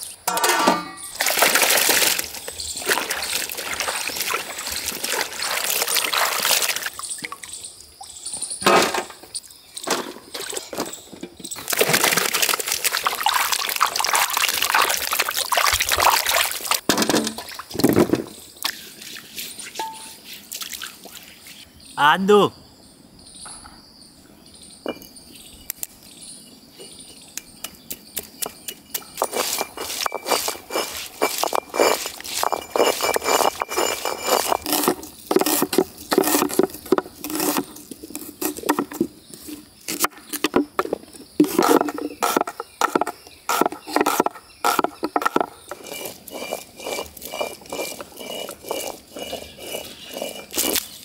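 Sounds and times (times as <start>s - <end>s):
rhythmic scraping strokes: 43.5s - 50.8s.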